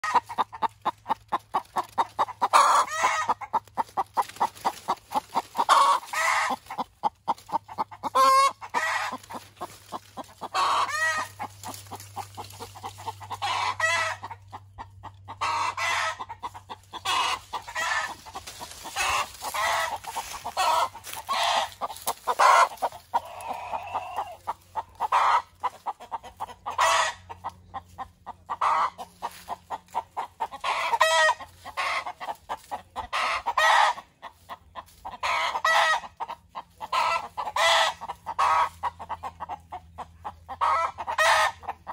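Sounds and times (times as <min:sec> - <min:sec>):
hen clucking: 0:00.0 - 0:41.9.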